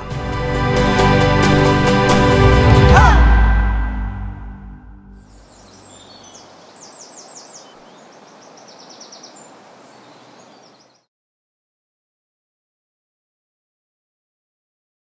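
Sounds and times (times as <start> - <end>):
music: 0.0 - 5.3
birds chirping trills: 5.2 - 11.1.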